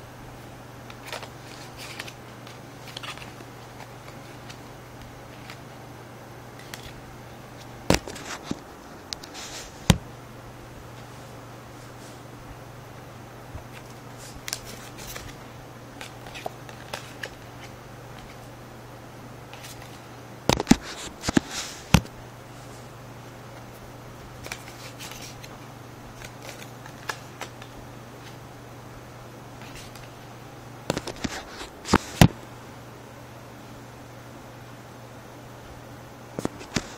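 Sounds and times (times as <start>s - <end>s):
playing cards clicking and snapping: 0.8s - 4.6s, 7.9s - 10.0s, 13.7s - 15.4s, 16.0s - 18.5s, 19.5s - 22.1s, 24.4s - 28.4s, 30.9s - 32.4s.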